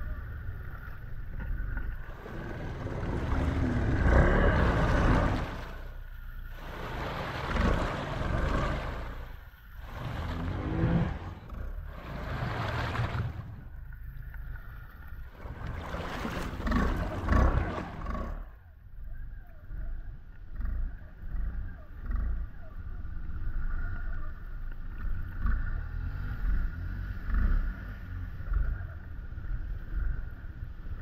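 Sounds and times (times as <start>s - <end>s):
water washing around: 0.0s - 18.6s
churning water rush: 0.0s - 18.8s
engine running at low speed: 0.0s - 31.0s.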